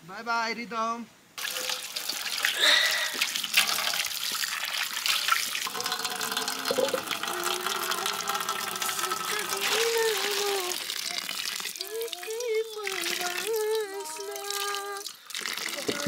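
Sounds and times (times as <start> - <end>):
water running and splashing: 1.4 - 16.0.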